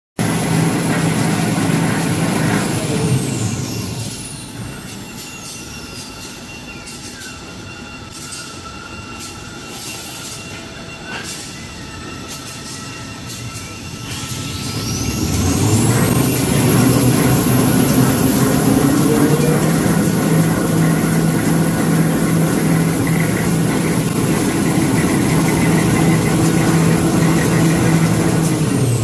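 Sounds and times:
electric motors whining: 0.2 - 29.0
machinery noise: 0.2 - 29.0.

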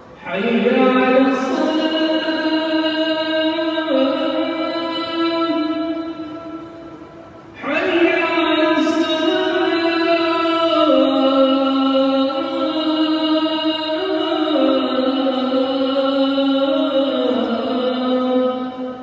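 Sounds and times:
call to prayer chanted: 0.0 - 19.0.

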